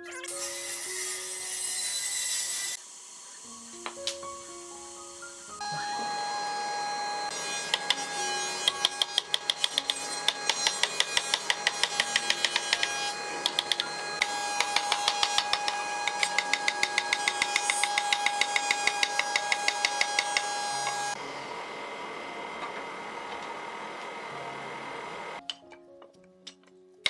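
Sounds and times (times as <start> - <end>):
hammer tapping on wood: 8.7 - 20.5.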